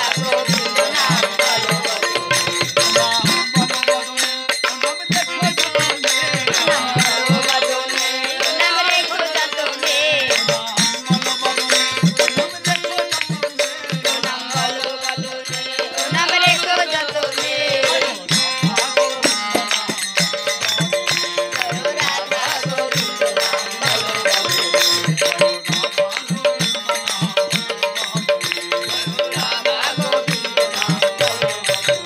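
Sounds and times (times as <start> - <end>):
devotional singing: 0.0 - 32.0
hand drum beat: 16.2 - 23.1.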